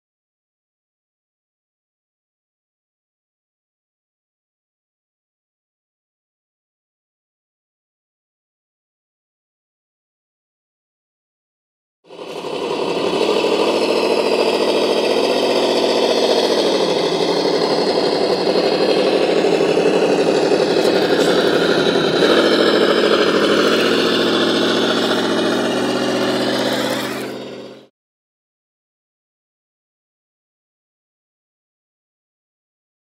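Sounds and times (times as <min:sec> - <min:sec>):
engine idling: 0:12.1 - 0:27.9.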